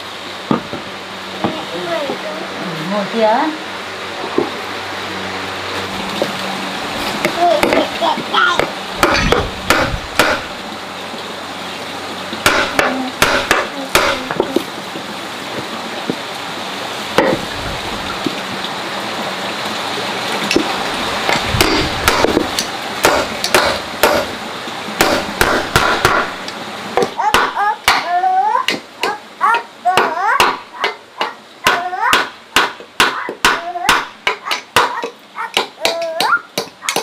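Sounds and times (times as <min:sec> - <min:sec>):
steady background hiss: 0:00.0 - 0:37.0
sharp knocks and taps: 0:30.0 - 0:37.0.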